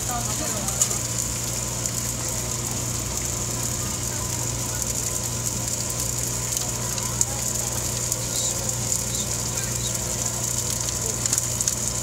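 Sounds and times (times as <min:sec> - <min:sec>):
chicken frying on griddle: 0:00.0 - 0:12.0
constant low hum: 0:00.0 - 0:12.0.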